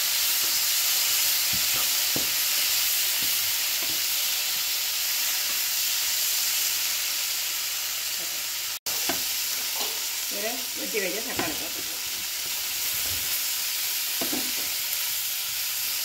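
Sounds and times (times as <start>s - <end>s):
food sizzling in a frying pan: 0.0s - 16.0s
spatula knocking and scraping pan: 1.4s - 4.2s, 8.2s - 10.1s, 14.2s - 14.8s.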